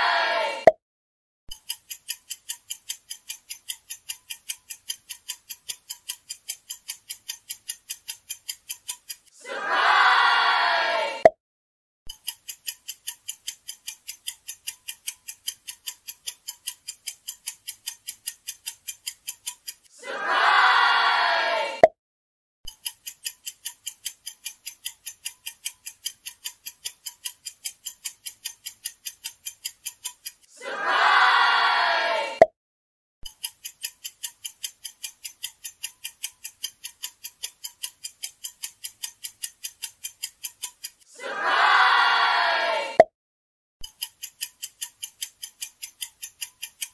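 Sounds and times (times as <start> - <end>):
clock ticking sound effect: 1.5 - 9.4, 12.1 - 20.0, 22.7 - 30.6, 33.3 - 41.1, 43.8 - 46.9.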